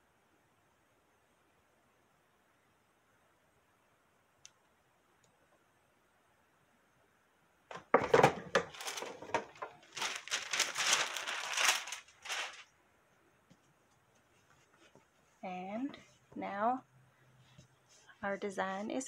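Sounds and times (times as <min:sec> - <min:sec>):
parchment paper crinkling: 0:08.6 - 0:12.7.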